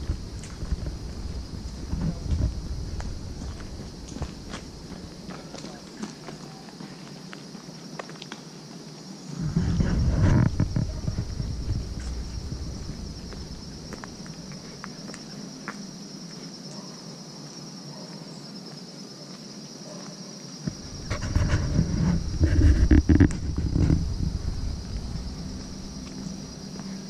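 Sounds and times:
footsteps on paved path: 0:00.0 - 0:27.0
insects trilling: 0:00.0 - 0:27.0
loud low rumble: 0:09.4 - 0:14.5, 0:20.7 - 0:26.1.

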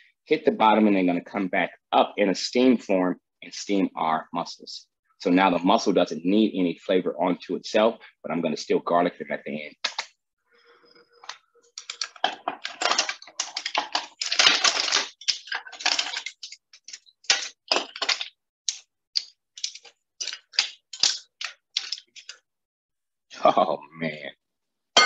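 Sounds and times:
mussel shells clattering in steel pot: 0:11.8 - 0:18.8.

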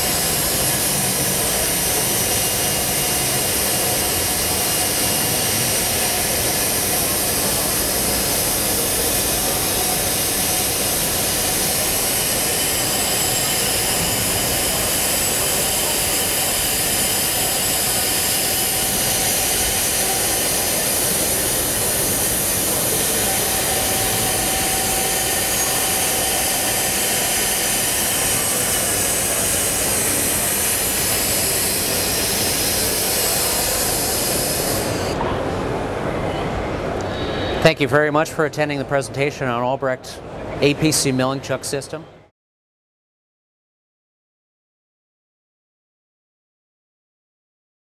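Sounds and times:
faint high whines: 0:00.0 - 0:35.5
machining centre rushing noise: 0:00.0 - 0:42.1.

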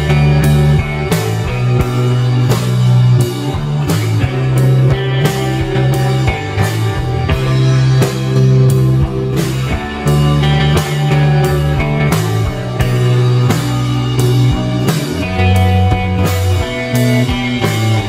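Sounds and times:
rock music with guitar and drums: 0:00.0 - 0:18.0.

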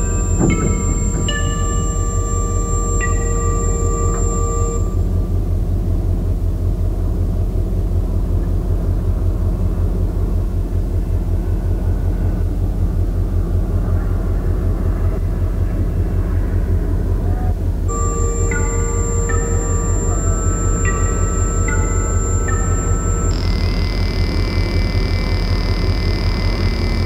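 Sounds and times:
held tones: 0:00.0 - 0:05.1, 0:17.9 - 0:24.1.

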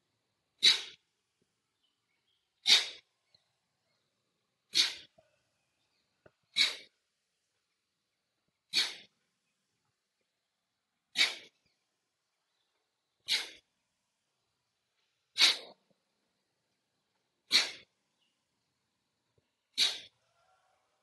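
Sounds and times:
forceful nasal exhalations: 0:06.6 - 0:06.9, 0:15.4 - 0:15.8, 0:17.5 - 0:17.9, 0:19.7 - 0:20.1.

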